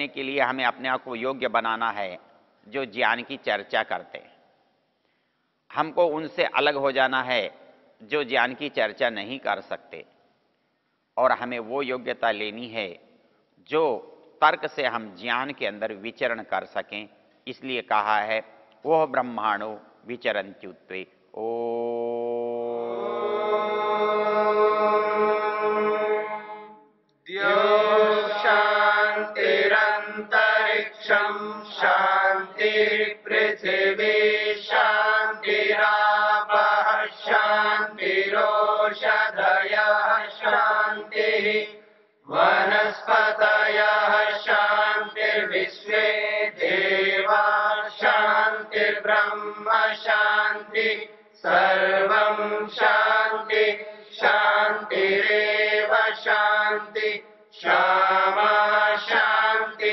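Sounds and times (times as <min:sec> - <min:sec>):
mantra chanting: 0:18.1 - 0:59.9.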